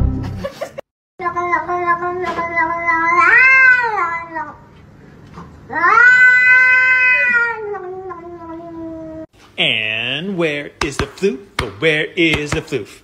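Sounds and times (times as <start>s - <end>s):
cat yowling: 1.2s - 4.6s, 5.7s - 9.3s.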